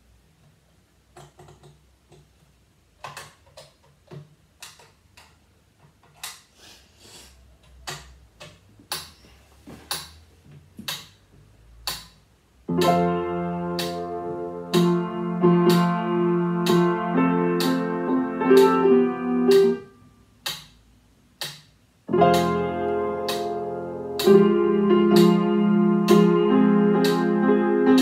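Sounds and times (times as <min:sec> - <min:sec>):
metronome ticking: 0:11.8 - 0:19.8, 0:20.4 - 0:28.0
slow piano playing: 0:12.7 - 0:20.1, 0:22.1 - 0:28.0.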